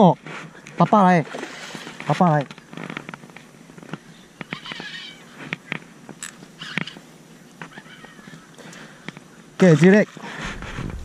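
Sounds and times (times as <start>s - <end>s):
fish splashing: 1.2s - 2.0s.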